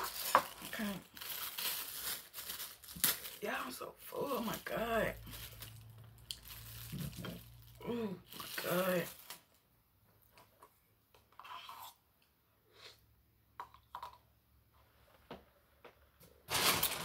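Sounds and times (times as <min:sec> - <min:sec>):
plastic spoon scraping paper cup: 0:11.3 - 0:12.0.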